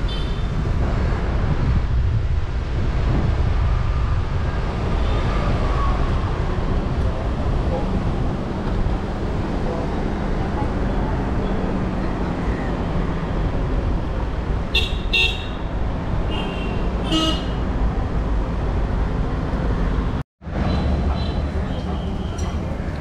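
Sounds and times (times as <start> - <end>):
traffic rumble: 0.0 - 23.0
vehicle horns tooting: 14.7 - 15.7, 16.3 - 17.7.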